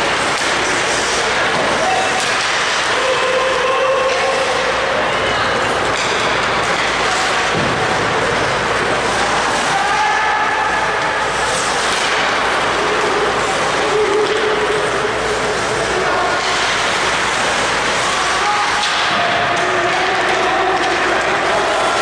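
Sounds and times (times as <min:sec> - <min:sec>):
arena background hum: 0:00.0 - 0:22.0
skates scraping ice: 0:00.0 - 0:22.0
distant shouts: 0:09.6 - 0:11.0.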